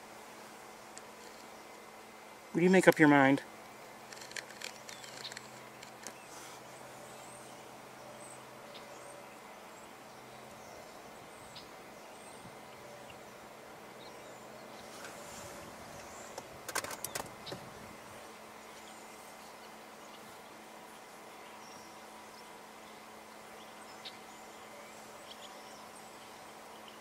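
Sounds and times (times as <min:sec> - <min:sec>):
insects: 0:00.0 - 0:27.0
distant bird chirps: 0:04.0 - 0:17.8
sharp clicks: 0:04.1 - 0:06.2, 0:16.3 - 0:17.6.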